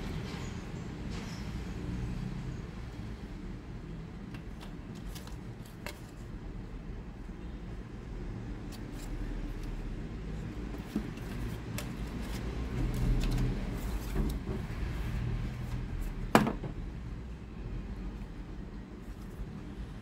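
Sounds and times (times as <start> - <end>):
cardboard box rustling and clicking: 10.6 - 14.5.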